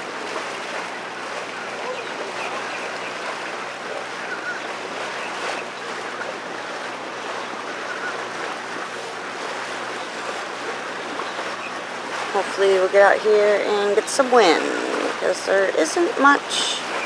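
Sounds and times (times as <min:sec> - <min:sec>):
water rushing along hull: 0:00.0 - 0:17.0.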